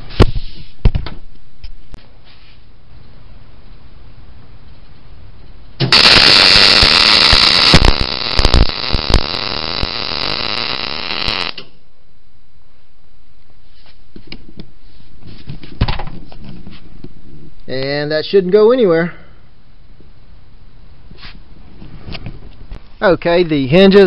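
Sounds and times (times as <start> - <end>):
welder arc crackling: 5.8 - 11.8.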